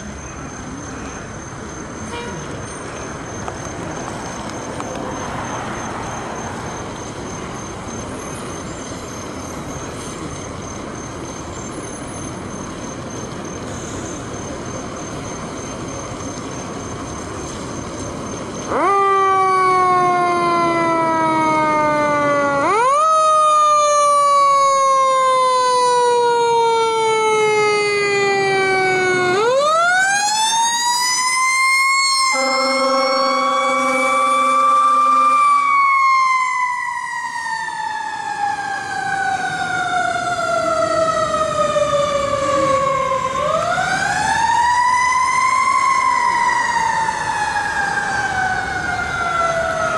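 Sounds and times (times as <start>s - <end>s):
fire engine siren wailing: 4.0s - 49.9s
horn blast: 32.3s - 35.6s.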